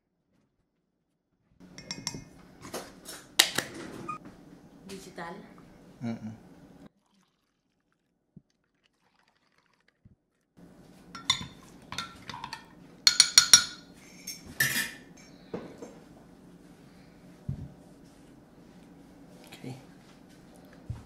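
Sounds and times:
spoon clinking against glass: 0:01.8 - 0:02.3, 0:11.2 - 0:15.0.

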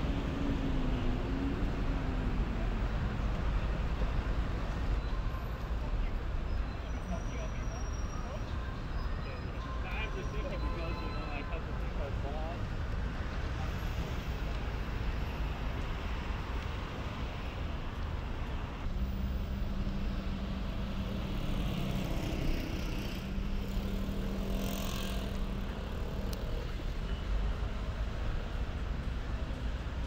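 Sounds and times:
cars passing: 0:09.5 - 0:30.0.

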